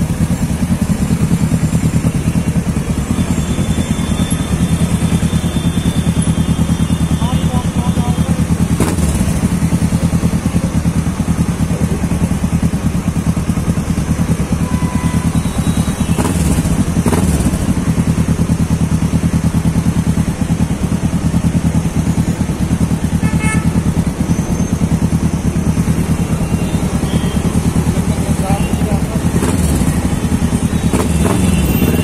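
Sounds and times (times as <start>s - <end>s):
motorcycle engine throbbing: 0.0s - 32.0s
vehicle horn beep: 3.1s - 8.4s, 14.3s - 16.8s, 23.1s - 24.8s, 26.3s - 27.8s, 30.7s - 32.0s.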